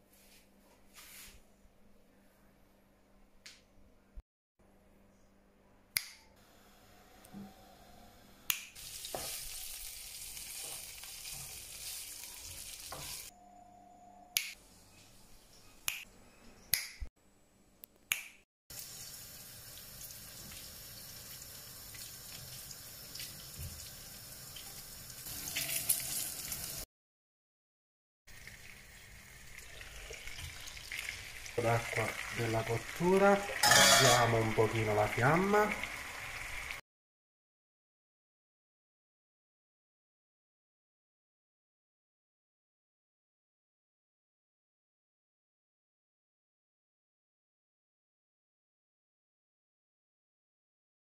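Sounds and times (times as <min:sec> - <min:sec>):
meat sizzling in a pan: 0:08.8 - 0:13.3, 0:18.7 - 0:26.8, 0:28.3 - 0:36.8
kitchen clicks and knocks: 0:33.6 - 0:34.4.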